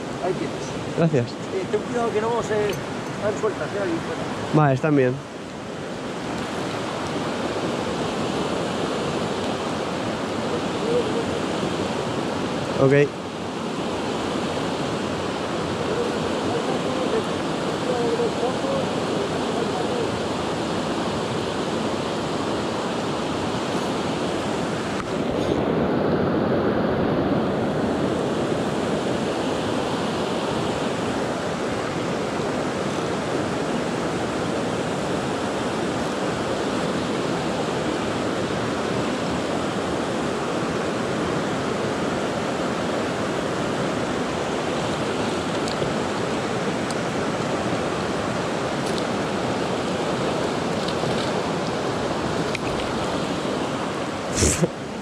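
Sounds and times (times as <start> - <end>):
river rushing over rapids: 0.0 - 55.0.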